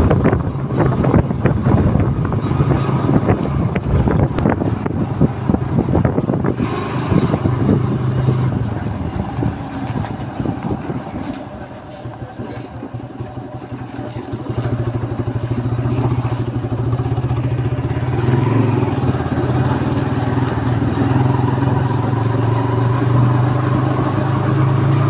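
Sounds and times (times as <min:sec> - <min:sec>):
wind on microphone: 0:00.0 - 0:11.7
motorcycle engine: 0:00.0 - 0:25.0.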